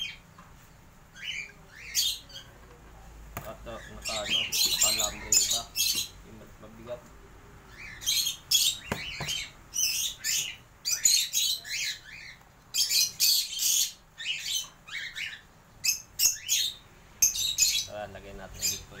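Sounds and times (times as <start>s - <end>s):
cockatiels squawking: 3.4s - 6.2s, 7.7s - 17.9s, 18.6s - 19.0s.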